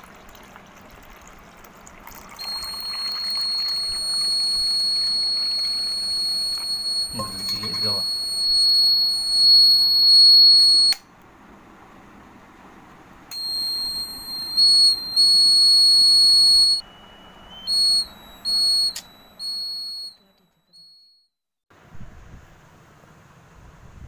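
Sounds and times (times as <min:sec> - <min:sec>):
high-pitched buzzer tone: 0:02.4 - 0:11.0, 0:13.3 - 0:21.2
short beeps changing pitch: 0:02.4 - 0:11.0, 0:13.3 - 0:21.2.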